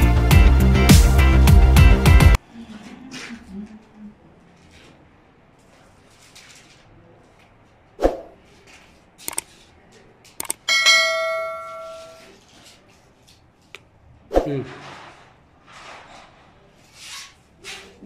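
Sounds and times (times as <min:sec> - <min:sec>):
sharp metal knocks: 0:10.5 - 0:12.2
ringing metallic clang: 0:10.6 - 0:12.3.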